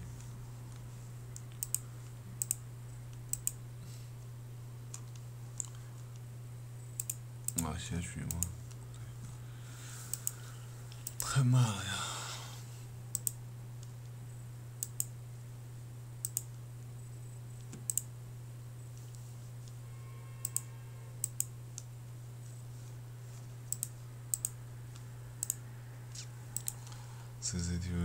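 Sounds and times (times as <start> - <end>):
low electrical hum: 0.0 - 28.0
computer mouse clicks: 1.4 - 1.8, 2.4 - 2.6, 3.3 - 3.6, 4.9 - 6.2, 7.0 - 7.6, 8.3 - 8.8, 10.1 - 11.3, 13.1 - 13.4, 14.8 - 15.1, 16.2 - 16.6, 17.6 - 18.1, 20.4 - 21.9, 23.7 - 27.0.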